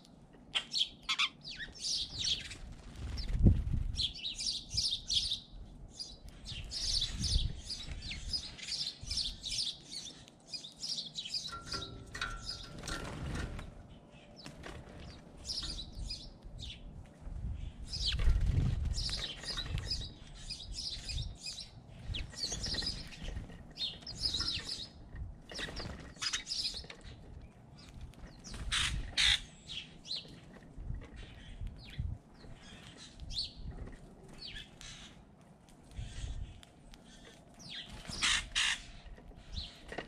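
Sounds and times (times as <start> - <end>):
small birds chirping: 0.0 - 40.0
wing flutters: 2.2 - 4.1, 17.9 - 21.2, 22.0 - 29.4.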